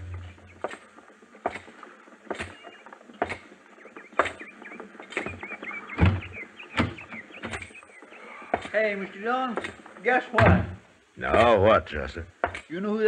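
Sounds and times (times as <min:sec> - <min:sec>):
birds chirping: 0:00.0 - 0:10.4
boots on wooden boards: 0:05.1 - 0:07.8.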